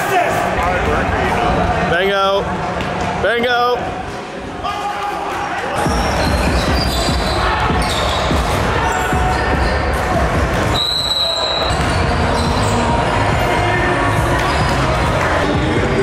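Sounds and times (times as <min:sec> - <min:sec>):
music with heavy bass: 0:05.8 - 0:10.8, 0:11.8 - 0:16.0.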